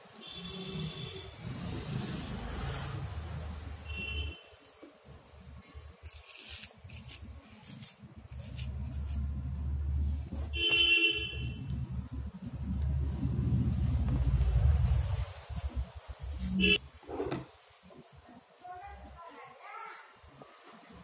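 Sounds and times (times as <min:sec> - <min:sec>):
vehicle horn honk: 0:00.2 - 0:01.4, 0:03.8 - 0:04.5, 0:10.5 - 0:11.8, 0:16.5 - 0:16.8
low traffic rumble: 0:00.8 - 0:04.4, 0:08.2 - 0:17.0.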